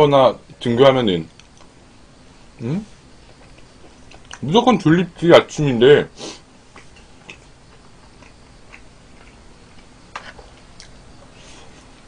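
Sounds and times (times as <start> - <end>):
quiet chewing: 3.2 - 4.4, 6.7 - 12.0.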